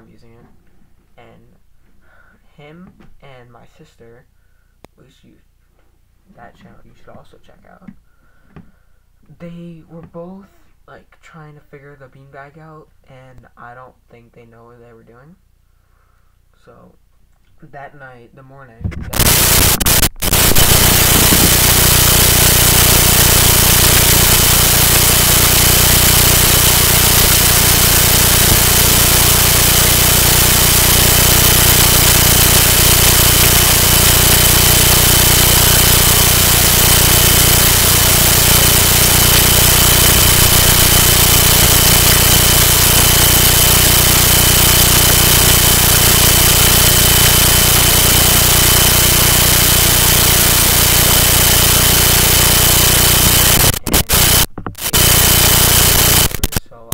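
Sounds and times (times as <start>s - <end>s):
electrical buzz and hiss: 19.1s - 56.7s
high whine: 19.1s - 56.9s.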